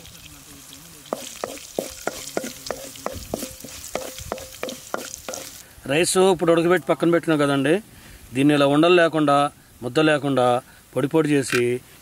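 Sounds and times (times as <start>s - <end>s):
oil sizzling in a pan: 0.0s - 5.7s
spatula scraping a pan: 1.1s - 5.6s.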